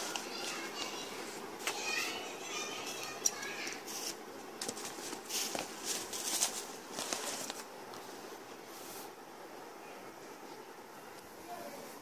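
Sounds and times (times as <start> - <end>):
rustling handling noise: 0.0 - 9.2.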